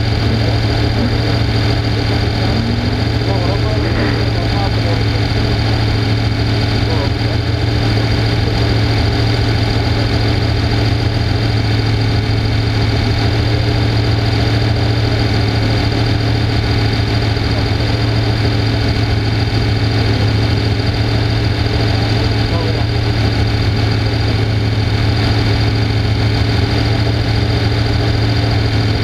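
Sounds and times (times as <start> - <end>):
engine idling: 0.0 - 29.0.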